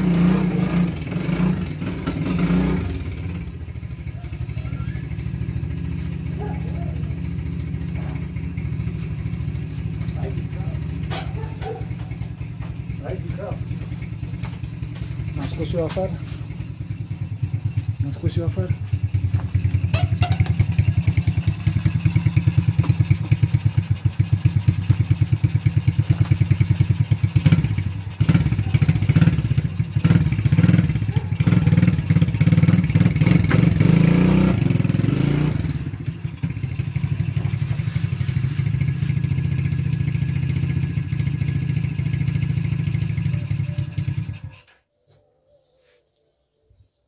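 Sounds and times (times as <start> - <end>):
atv engine running: 0.0 - 44.7.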